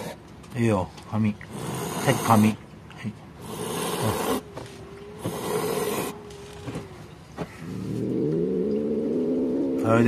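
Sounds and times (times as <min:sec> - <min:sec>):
cat growling: 0:01.5 - 0:02.5, 0:03.4 - 0:10.0
cat hissing: 0:01.5 - 0:02.6, 0:03.4 - 0:06.6.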